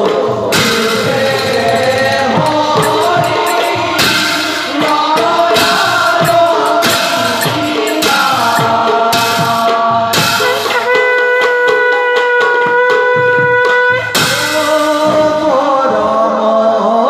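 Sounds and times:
drum strokes: 0.0s - 16.3s
voices singing a chant: 0.0s - 17.0s
hand cymbals clashing: 0.6s - 11.0s.

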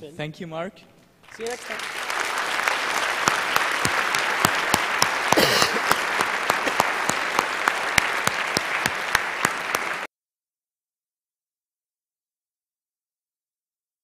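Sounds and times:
audience applauding: 1.2s - 10.1s.

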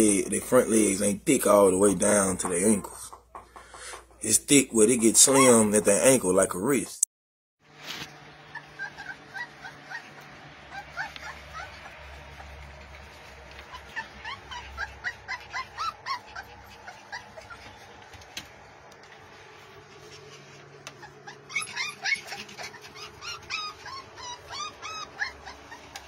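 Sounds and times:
puppies crying in high squeaks: 5.2s - 5.8s, 8.5s - 18.0s, 20.9s - 26.0s.

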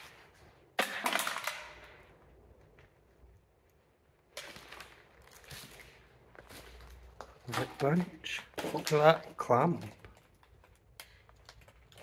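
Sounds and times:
footsteps crunching through debris: 4.3s - 10.4s.

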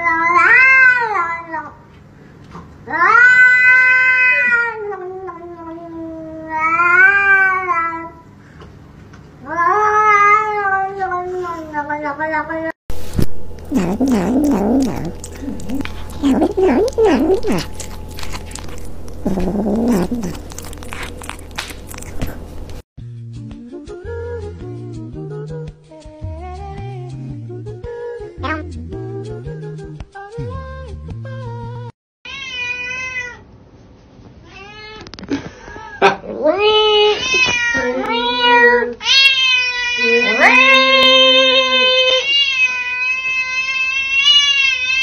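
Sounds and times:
kitten teeth clicking: 13.2s - 22.8s
low cat cry: 13.5s - 22.8s.

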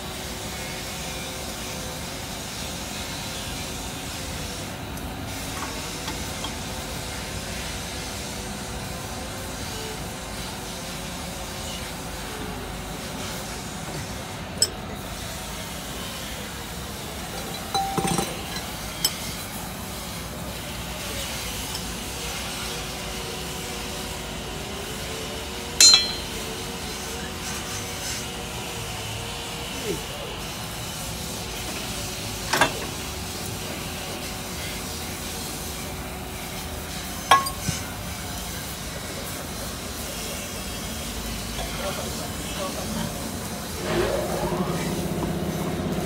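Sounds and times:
workshop hum: 0.0s - 46.0s
metallic tool clinks: 17.4s - 18.7s, 25.8s - 26.5s.

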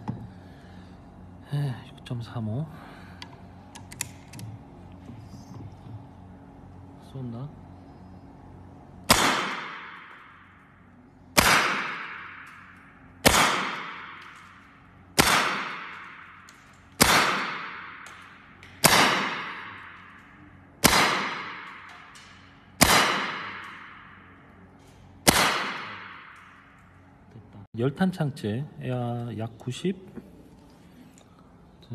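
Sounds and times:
air rifle shots: 9.0s - 10.6s, 11.4s - 20.2s, 20.8s - 24.4s, 25.2s - 26.7s.

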